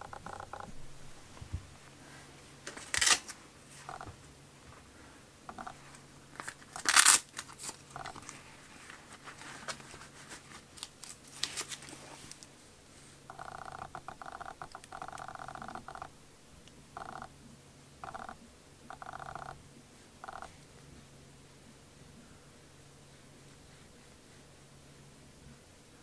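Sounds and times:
scratchy rustles: 0:05.5 - 0:13.2.

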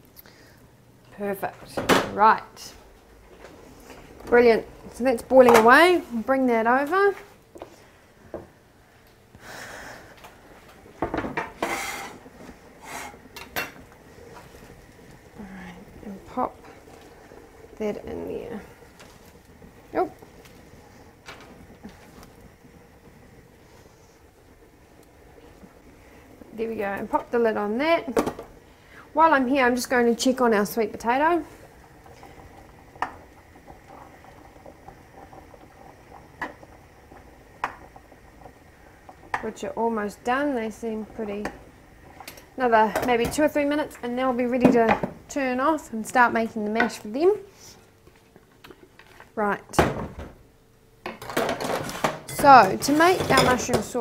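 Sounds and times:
pot bubbling at a boil: 0:00.0 - 0:54.0
metal scrape: 0:11.4 - 0:12.2, 0:12.8 - 0:13.2
metal saucepans clanking: 0:51.1 - 0:54.0.

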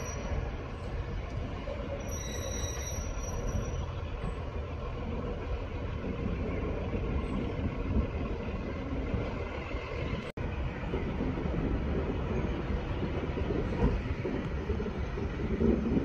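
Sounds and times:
high wheel squeal: 0:00.0 - 0:04.7
diesel train engines rumbling: 0:00.0 - 0:16.0.

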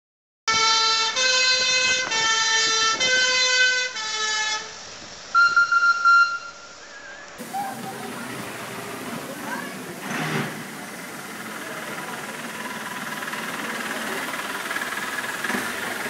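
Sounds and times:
fire engine two-tone horn: 0:00.5 - 0:06.6.

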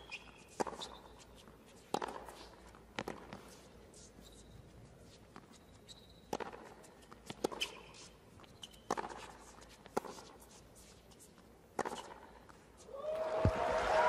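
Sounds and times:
tennis shoes squeaking on court: 0:00.0 - 0:12.9
racket striking tennis ball: 0:00.1 - 0:01.2, 0:01.8 - 0:03.6, 0:06.3 - 0:10.5, 0:11.7 - 0:12.6.

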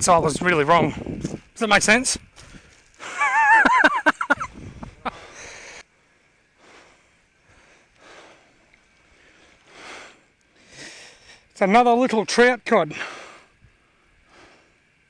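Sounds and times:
man laughing: 0:03.0 - 0:05.3
soft breaths: 0:04.8 - 0:11.6, 0:12.9 - 0:15.0.

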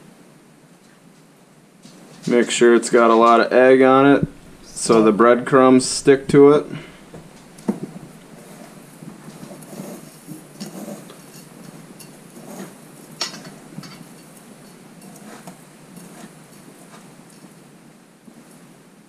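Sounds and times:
breadcrumbs rustling and scraping: 0:01.9 - 0:17.5.

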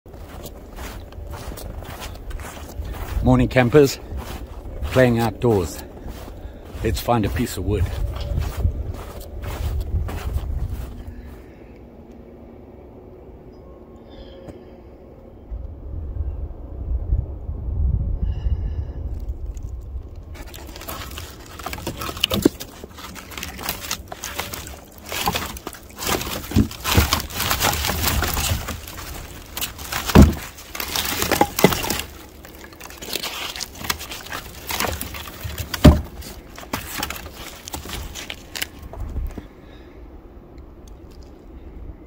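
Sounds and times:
logs knocking and clattering: 0:20.4 - 0:39.4.

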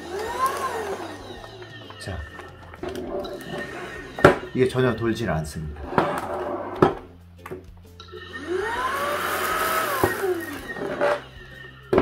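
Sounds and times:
vacuum motor whine: 0:00.0 - 0:04.7, 0:08.3 - 0:12.0.

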